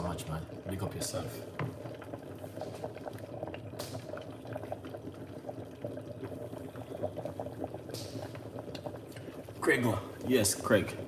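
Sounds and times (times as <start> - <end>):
soup bubbling in a pot: 0.0 - 11.0.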